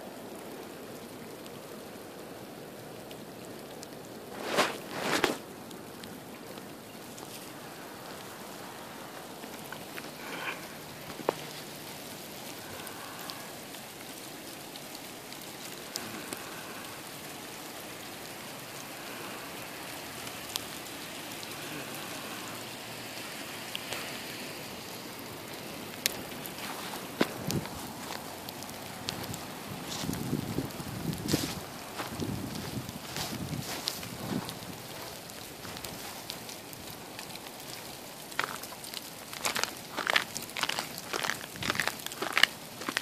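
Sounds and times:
ice pellets and rain falling: 0:00.0 - 0:43.0
sharp ticks of ice pellets: 0:35.0 - 0:43.0.

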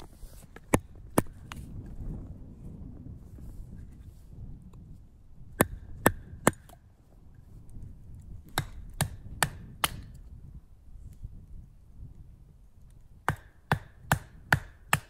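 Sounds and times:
wood chopping with a blade: 0:00.0 - 0:01.8, 0:05.5 - 0:06.8, 0:08.3 - 0:10.2, 0:13.2 - 0:15.0.

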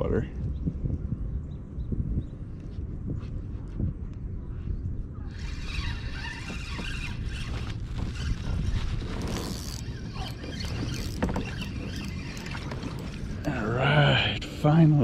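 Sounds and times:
constant low rumble: 0:00.0 - 0:15.0
fishing reel whirring: 0:05.3 - 0:13.5.

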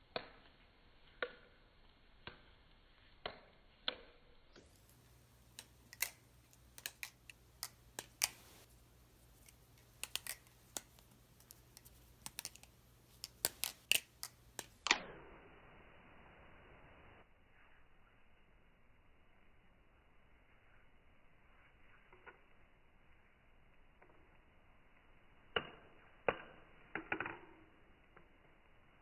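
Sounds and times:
butterfly knife handles clacking: 0:04.6 - 0:08.7, 0:09.3 - 0:14.8.

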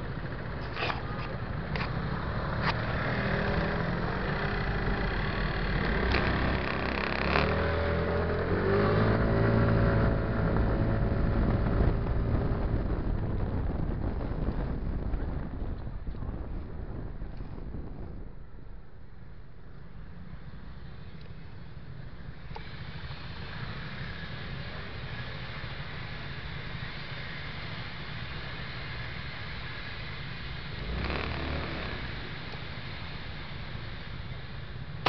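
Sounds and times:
scooter engine running: 0:00.0 - 0:13.2, 0:30.4 - 0:35.0
city traffic: 0:00.0 - 0:35.0.

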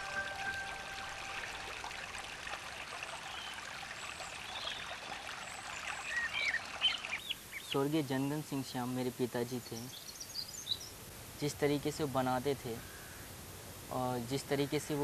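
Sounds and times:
stream babbling over rocks: 0:00.0 - 0:07.6.

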